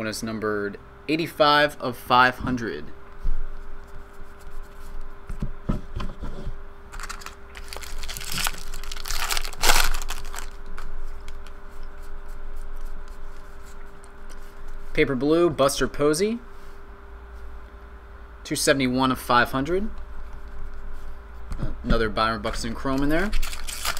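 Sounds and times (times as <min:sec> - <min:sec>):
foil wrapper tearing and crinkling: 0:06.9 - 0:11.6, 0:23.2 - 0:23.9.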